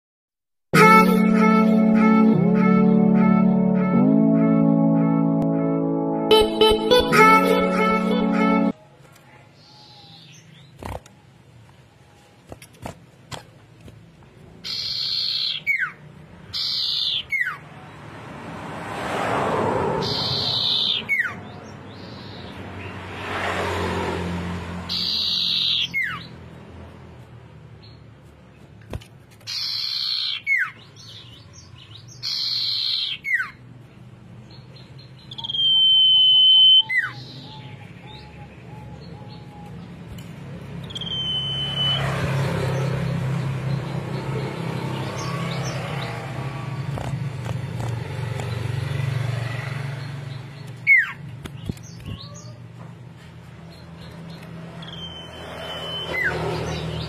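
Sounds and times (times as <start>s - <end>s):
long high bird whistle: 40.9s - 42.0s, 54.8s - 56.4s.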